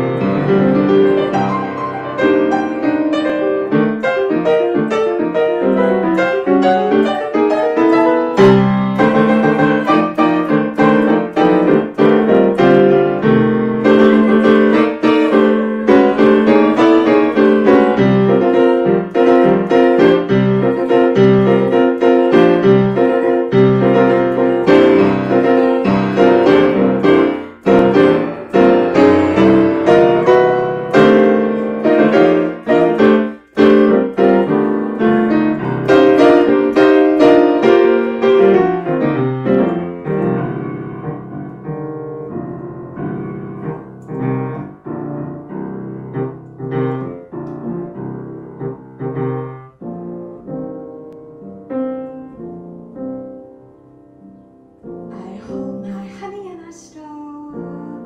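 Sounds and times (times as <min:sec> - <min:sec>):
grand piano playing: 0:00.0 - 0:58.0.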